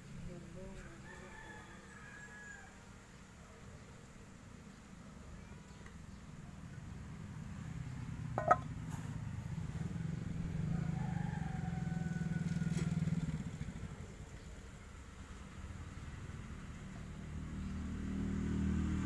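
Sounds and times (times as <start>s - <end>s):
vehicle engine passing by: 6.9s - 19.0s.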